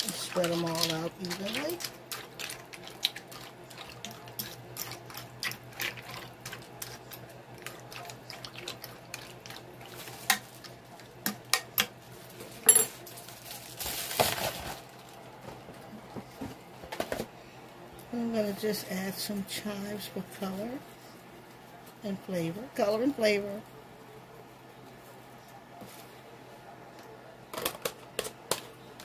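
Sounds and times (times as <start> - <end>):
wet stirring sounds: 0.0 - 12.6.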